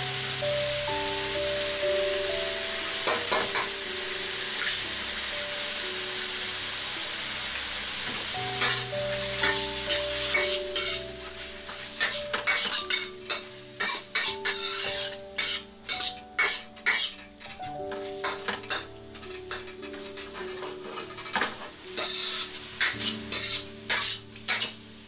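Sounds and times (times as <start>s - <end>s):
food sizzling in hot oil: 0.0s - 25.0s
spatula scraping a wok: 7.5s - 24.8s.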